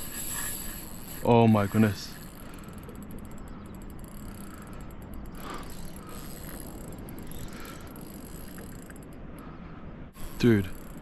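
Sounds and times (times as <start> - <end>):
fishing reel drag ticking: 0.0 - 9.5, 10.1 - 11.0
wind: 0.0 - 11.0.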